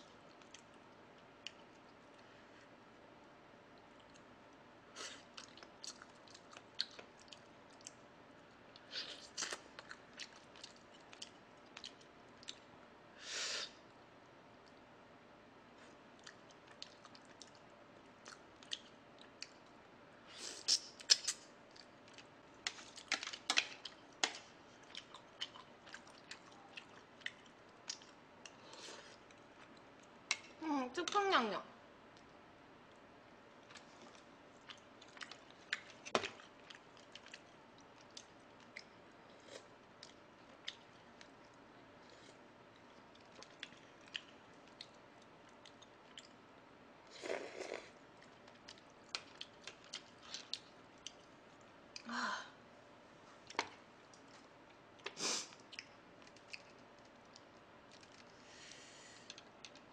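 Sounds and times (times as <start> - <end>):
person chewing food: 5.0 - 8.0, 8.7 - 12.7, 15.8 - 19.8, 20.6 - 30.5, 33.6 - 46.4, 47.2 - 52.0, 53.5 - 58.5
mouth clicks and smacks: 20.6 - 21.9
person slurping: 47.2 - 47.9.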